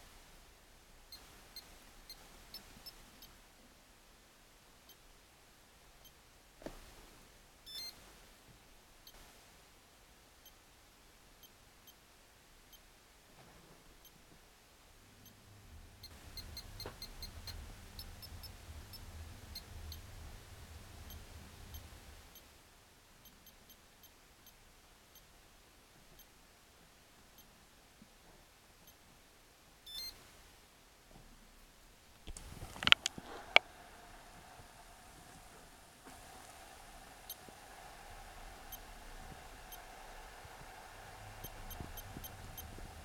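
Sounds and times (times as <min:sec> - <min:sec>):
radio transmitter key beeps: 0:07.7 - 0:08.0, 0:16.0 - 0:20.1, 0:29.9 - 0:30.2, 0:37.2 - 0:43.0
low rumble: 0:32.4 - 0:43.0.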